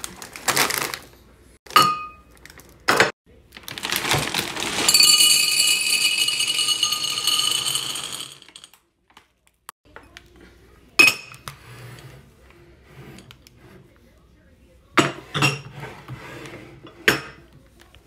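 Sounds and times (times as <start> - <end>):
glass clink: 1.8 - 2.3, 5.0 - 8.6
candy eggs rattling into glass jar: 3.7 - 8.8.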